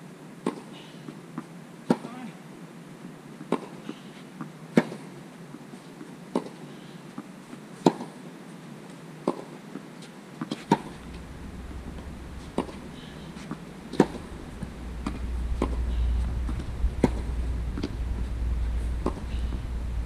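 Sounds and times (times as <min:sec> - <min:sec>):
tennis ball bounces: 0:01.4 - 0:02.1, 0:03.4 - 0:04.0, 0:07.8 - 0:08.1, 0:09.2 - 0:09.5, 0:10.4 - 0:19.6
tennis racket hitting ball: 0:10.4 - 0:19.6
low rumble: 0:10.8 - 0:20.0.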